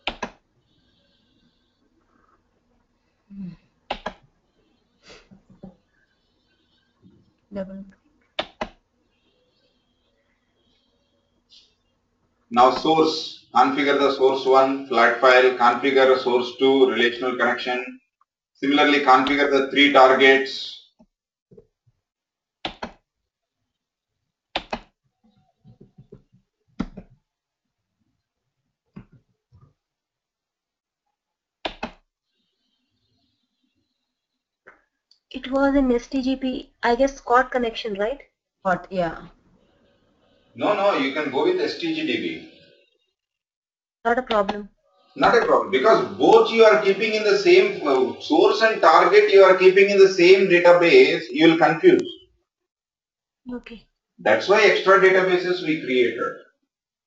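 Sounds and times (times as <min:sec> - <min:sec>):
sharp clicks: 0:00.0 - 0:00.4, 0:03.9 - 0:04.2, 0:08.4 - 0:08.8, 0:24.6 - 0:24.9, 0:31.6 - 0:32.0.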